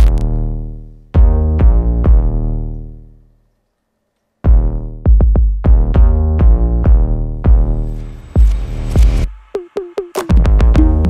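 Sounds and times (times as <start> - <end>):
electronic music: 0.0 - 3.1, 4.5 - 11.0
heavy bass drum hits: 4.5 - 7.7.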